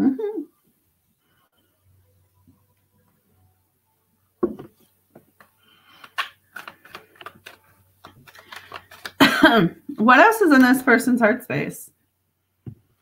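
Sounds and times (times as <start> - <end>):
knock: 4.4 - 4.7.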